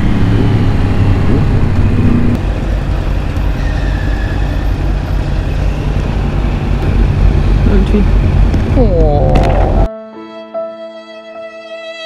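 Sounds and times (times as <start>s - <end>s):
motorcycle engine easing off: 0.0s - 2.4s.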